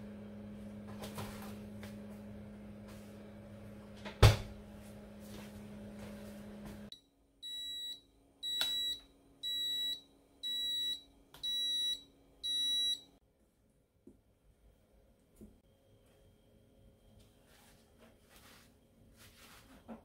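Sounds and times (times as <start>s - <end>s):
refrigerator door thudding shut: 4.2s - 4.5s
rice cooker long beeps: 7.4s - 13.2s.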